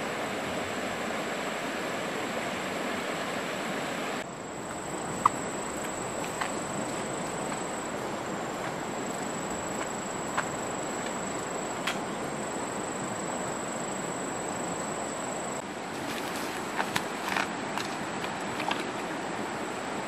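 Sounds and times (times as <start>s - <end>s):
stream flowing: 0.0s - 20.0s.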